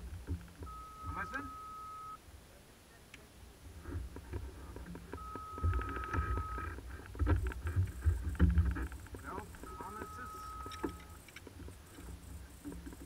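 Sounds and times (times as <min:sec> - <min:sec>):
electronic beep: 0:00.6 - 0:02.2, 0:05.2 - 0:06.7, 0:09.3 - 0:11.3
scattered clicks: 0:04.2 - 0:13.0.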